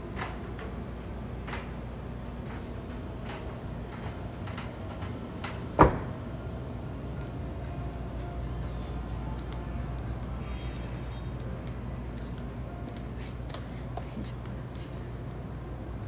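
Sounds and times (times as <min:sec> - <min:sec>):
van door slamming shut: 0:05.8 - 0:06.2.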